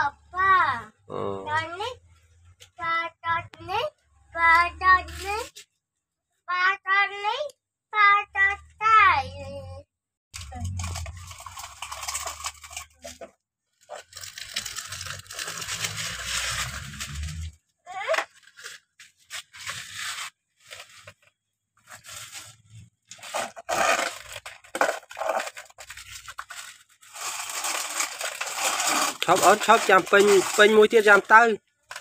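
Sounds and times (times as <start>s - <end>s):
toy excavator scraping sandy soil: 13.9s - 17.6s, 18.4s - 21.2s, 21.9s - 32.0s.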